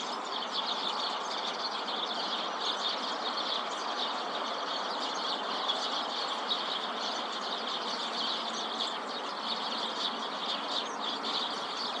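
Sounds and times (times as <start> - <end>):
sparrows chirping: 0.0 - 12.0
steady background noise: 0.0 - 12.0.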